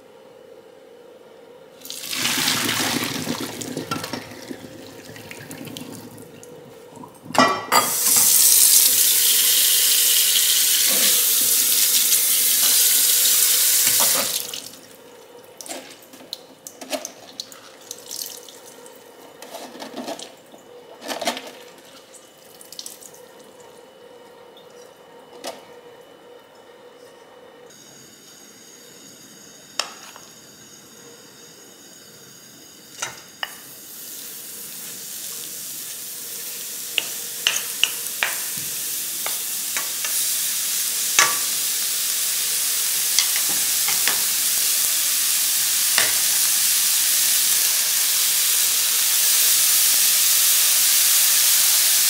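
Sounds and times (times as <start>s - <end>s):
hot water splashing into sink: 1.8s - 14.8s, 36.8s - 41.8s
tap running hard: 2.1s - 6.3s, 13.8s - 14.4s, 36.9s - 40.1s, 41.1s - 41.5s, 43.2s - 44.3s, 45.9s - 46.3s.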